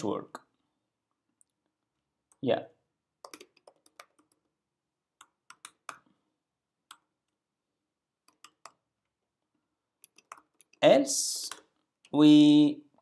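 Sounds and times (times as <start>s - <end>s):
keyboard keystrokes: 3.2s - 4.4s.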